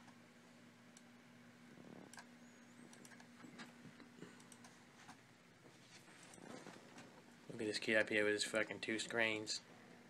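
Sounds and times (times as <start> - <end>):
steady electrical hum: 0.0 - 10.0
keyboard and mouse clicking: 2.9 - 3.7.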